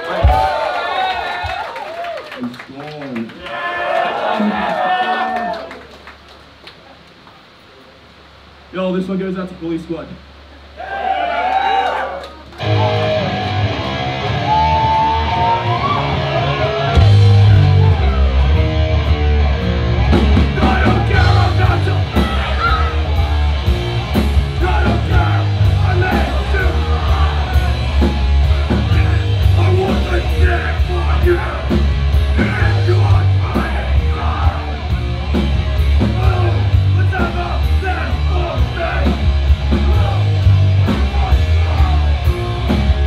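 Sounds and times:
drums and bass: 0.0s - 1.6s, 12.5s - 43.0s
distorted guitar bending notes: 12.6s - 43.0s
vocalist yelling: 20.4s - 23.4s, 24.5s - 31.7s, 32.3s - 34.9s, 36.0s - 42.3s.

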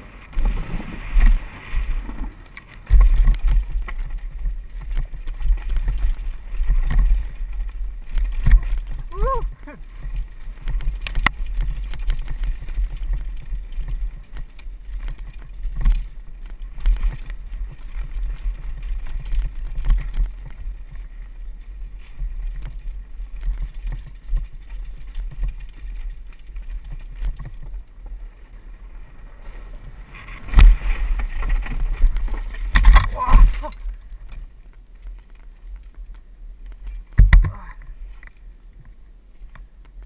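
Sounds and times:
wheels clattering on wooden planks: 0.0s - 9.2s
bike rattling over bumps: 0.0s - 40.0s
wind rumble on microphone: 0.0s - 40.0s.

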